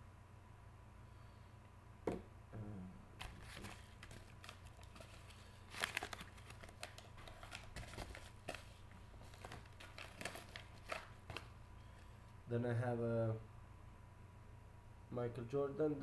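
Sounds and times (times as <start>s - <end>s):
plastic card sleeves rustling: 3.2s - 12.2s.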